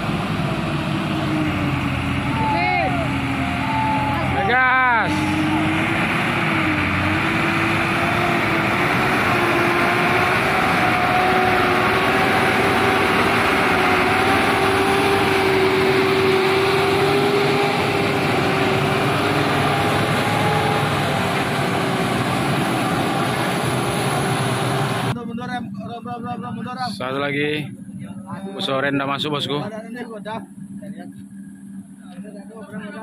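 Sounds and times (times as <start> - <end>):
truck diesel engine under load: 0.0 - 25.5.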